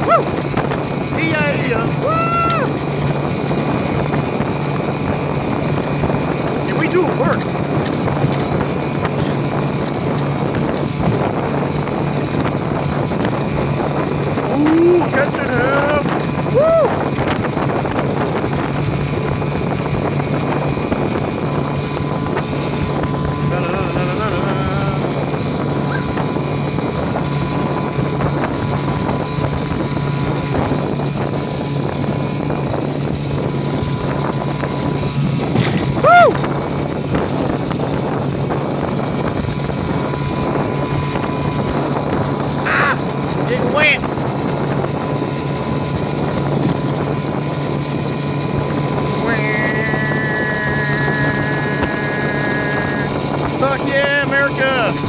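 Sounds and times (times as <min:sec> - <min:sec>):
outboard motor running: 0:00.0 - 0:55.0
rushing water: 0:00.0 - 0:55.0
wind buffeting microphone: 0:00.0 - 0:55.0.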